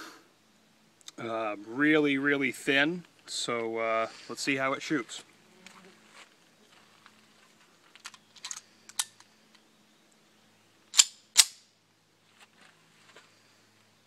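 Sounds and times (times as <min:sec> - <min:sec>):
gun handling clicks: 0:08.0 - 0:09.6, 0:10.9 - 0:11.6.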